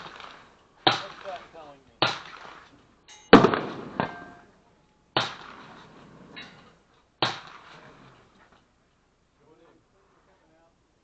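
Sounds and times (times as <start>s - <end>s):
gunshots with ringing echo: 0.0s - 2.6s, 3.3s - 4.5s, 5.2s - 5.9s, 7.2s - 7.8s.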